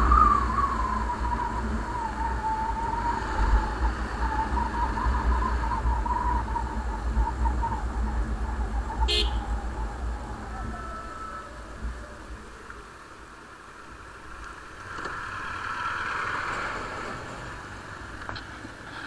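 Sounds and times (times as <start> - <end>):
whining tone falling in pitch: 0.0 - 13.0
motorcycle riding: 0.0 - 19.0
wind rumble on microphone: 0.0 - 19.0.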